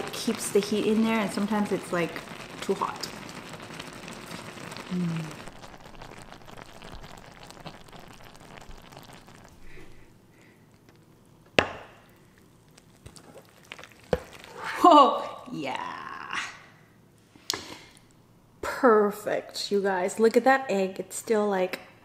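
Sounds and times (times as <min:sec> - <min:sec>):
stew simmering in a pan: 0:00.0 - 0:16.3.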